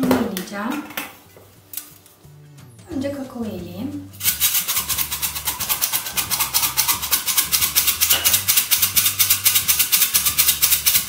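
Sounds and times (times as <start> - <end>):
flour sifter rasping rattle: 4.2 - 11.0.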